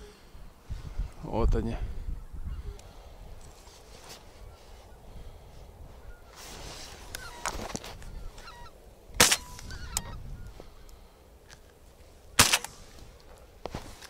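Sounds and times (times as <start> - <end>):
geese honking: 8.2 - 8.8, 9.4 - 10.2
shotgun shots with echo: 9.2 - 9.6, 12.4 - 12.8.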